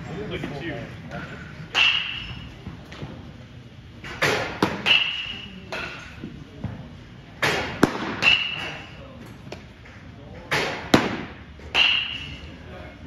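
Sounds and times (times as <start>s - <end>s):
baseballs hitting catcher's glove: 4.1s - 6.0s, 7.4s - 8.8s, 10.5s - 12.3s.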